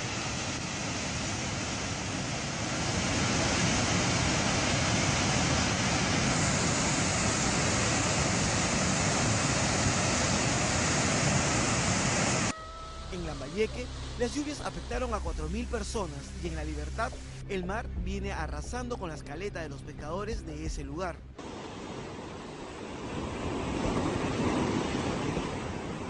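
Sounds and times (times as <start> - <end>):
mudflow rushing down channel: 0.0 - 12.5.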